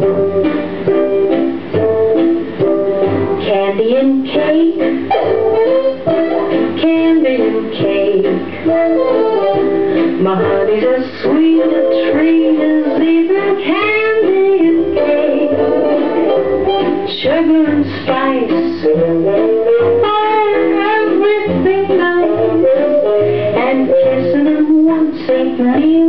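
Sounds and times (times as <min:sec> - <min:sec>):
small band with guitar and bass: 0:00.0 - 0:26.0
woman singing: 0:03.4 - 0:05.2, 0:06.1 - 0:26.0.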